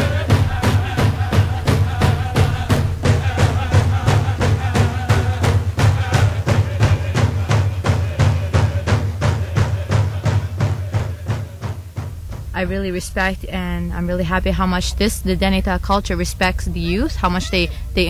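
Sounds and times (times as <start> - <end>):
group of voices singing: 0.0 - 11.9
frame drums beating: 0.0 - 18.0.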